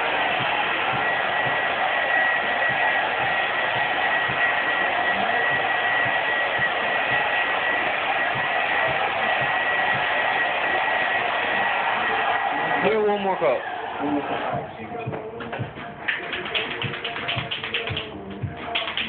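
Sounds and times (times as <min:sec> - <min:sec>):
hot-air blower running: 0:00.0 - 0:14.7.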